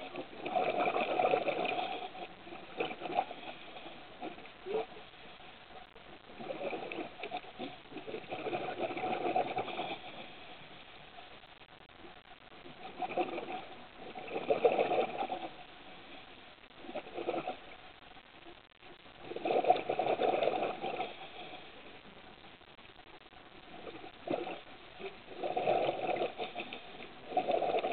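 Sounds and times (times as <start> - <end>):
diver bubbling exhalations: 0.0 - 3.6, 6.3 - 10.2, 12.8 - 15.6, 19.2 - 21.3, 23.8 - 27.9.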